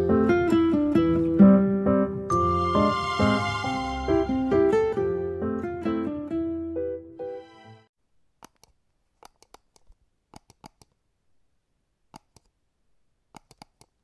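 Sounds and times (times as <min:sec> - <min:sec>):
guitar music: 0:00.0 - 0:07.9.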